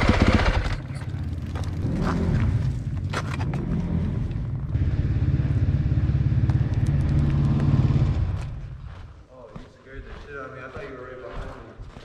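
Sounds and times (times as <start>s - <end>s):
dirt bike engine running: 0.0s - 9.2s.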